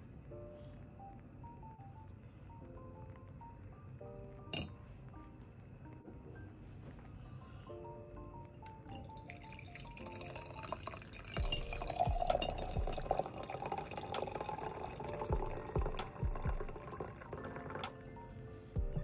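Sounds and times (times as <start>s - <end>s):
coffee pouring into a mug: 8.8s - 18.0s.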